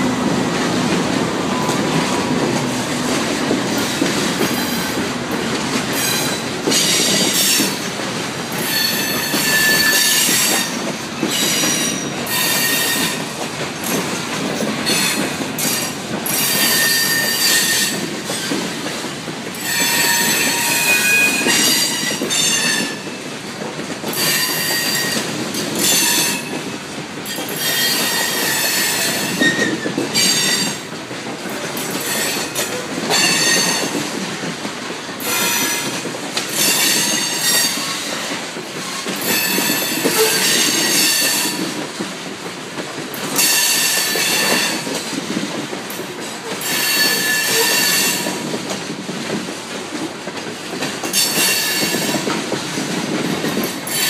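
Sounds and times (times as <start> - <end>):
train wheels rumbling on rails: 0.0 - 54.0
train wheels squealing: 8.6 - 13.2, 14.9 - 18.6, 19.6 - 23.2, 24.2 - 26.6, 27.3 - 30.8, 36.5 - 38.2, 38.8 - 41.6, 43.4 - 45.0, 46.6 - 48.4, 51.1 - 52.2.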